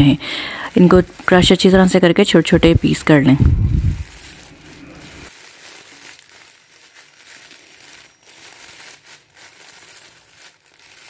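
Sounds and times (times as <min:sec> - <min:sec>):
plastic wrapper crinkling: 0:00.0 - 0:11.0
dry noodles breaking: 0:03.6 - 0:11.0.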